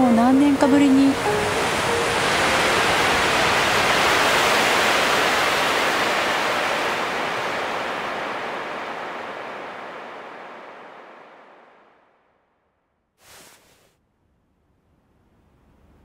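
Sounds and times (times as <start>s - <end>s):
loud rushing noise: 1.2s - 12.1s.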